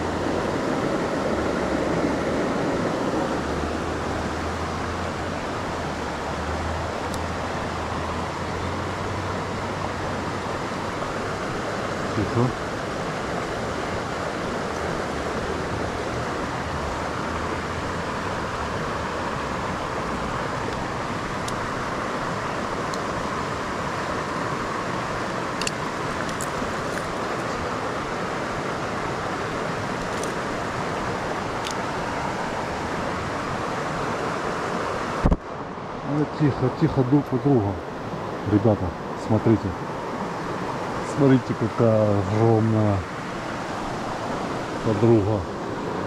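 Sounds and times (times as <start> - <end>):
river running over stones: 0.0 - 46.0
faint small clicks: 25.6 - 27.1.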